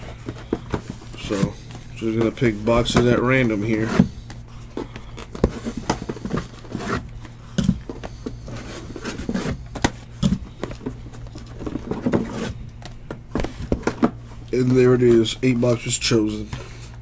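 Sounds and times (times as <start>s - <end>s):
cardboard boxes knocking and scraping: 0.2s - 4.1s, 5.3s - 14.2s.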